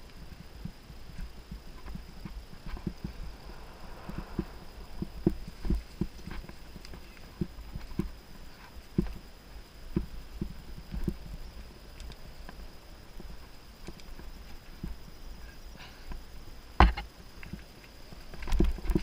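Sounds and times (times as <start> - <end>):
low rumble: 1.6 - 7.6
mountain bike knocks and rattles: 16.8 - 17.0.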